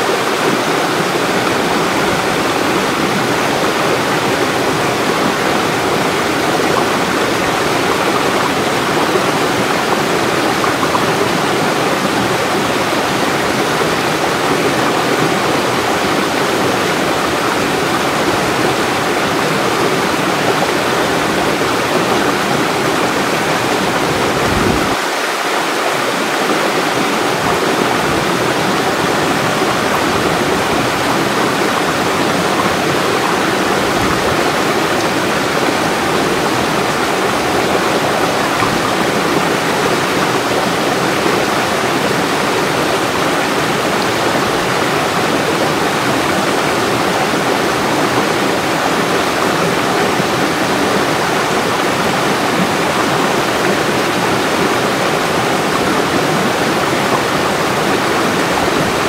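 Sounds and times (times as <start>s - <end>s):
waterfall pouring over boulders: 0.0s - 59.0s.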